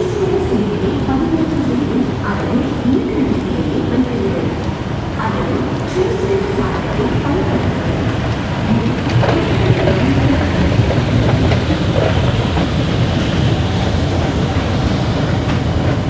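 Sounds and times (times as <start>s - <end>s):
faint voices: 0.0s - 16.0s
moving escalator: 0.0s - 16.0s.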